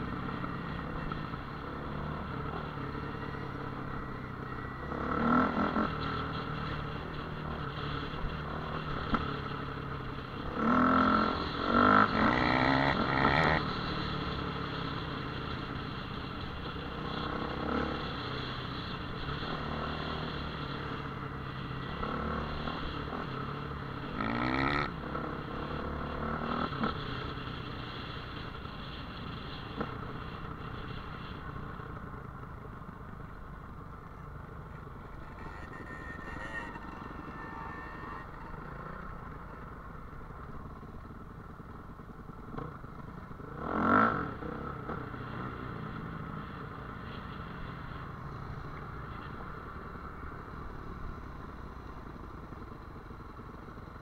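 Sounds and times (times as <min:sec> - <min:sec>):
dirt bike engine revving: 0:35.0 - 0:39.3.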